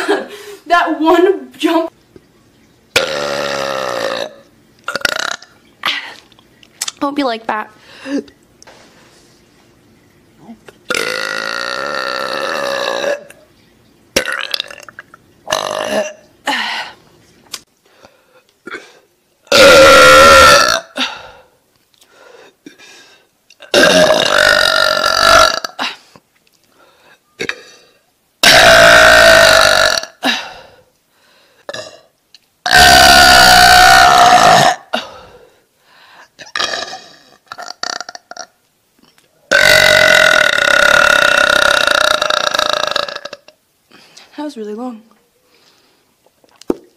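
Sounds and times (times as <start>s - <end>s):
woman burping: 2.9s - 6.3s, 10.6s - 13.4s, 14.2s - 16.8s, 18.6s - 21.3s, 23.6s - 26.0s, 27.4s - 30.7s, 31.7s - 35.3s, 36.4s - 43.6s.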